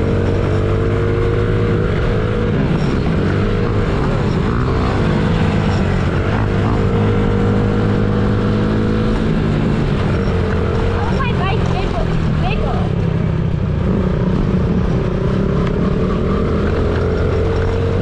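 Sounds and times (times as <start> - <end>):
small motorcycle engine running: 0.0 - 18.0.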